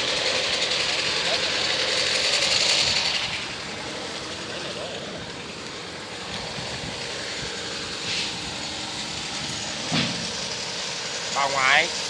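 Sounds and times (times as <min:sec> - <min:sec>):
diesel engine running: 0:00.0 - 0:12.0
short hiss: 0:08.0 - 0:08.4
thump: 0:09.8 - 0:10.3.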